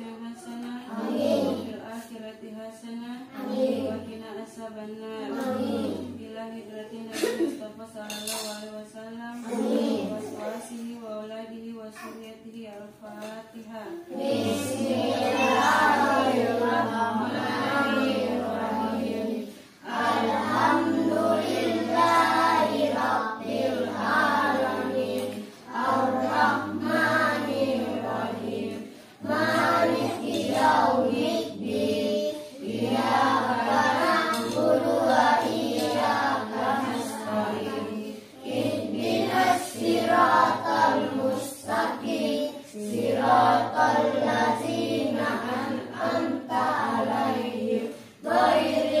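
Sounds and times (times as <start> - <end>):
children chanting in unison: 0.9 - 1.8, 3.3 - 4.1, 5.2 - 6.2, 9.4 - 10.6, 14.0 - 49.0.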